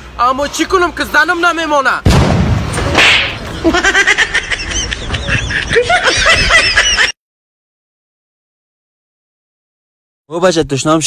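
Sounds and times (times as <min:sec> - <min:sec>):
high-pitched giggling laughter: 0:03.6 - 0:07.2.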